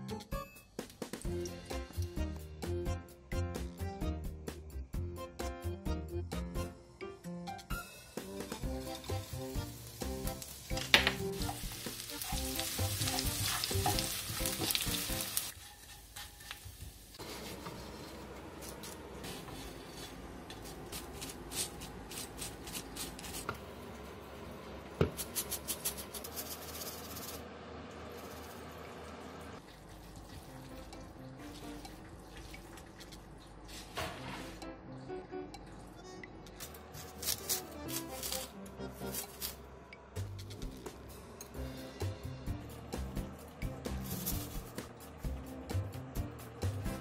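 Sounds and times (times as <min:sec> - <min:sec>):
background music: 0:00.0 - 0:15.5, 0:34.0 - 0:47.0
fish sizzling in oil: 0:08.1 - 0:18.1.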